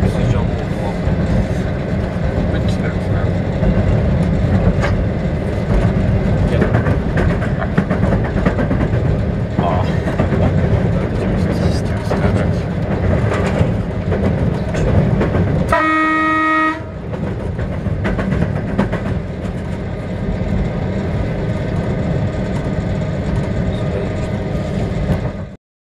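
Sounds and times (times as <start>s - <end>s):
train rumbling on rails: 0.0s - 25.6s
train horn blast: 15.7s - 17.0s.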